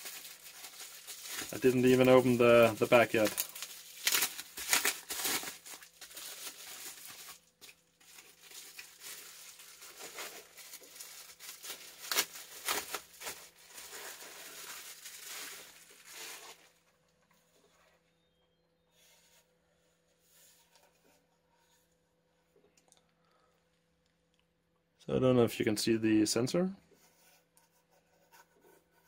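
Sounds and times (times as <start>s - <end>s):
bubble wrap crinkling: 0.0s - 16.9s.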